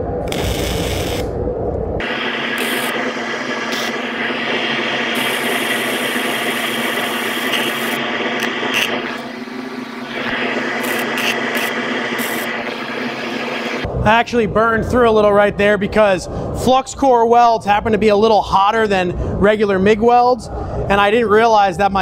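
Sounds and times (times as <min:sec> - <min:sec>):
welding arc sizzling: 0:00.0 - 0:01.4, 0:02.0 - 0:13.9.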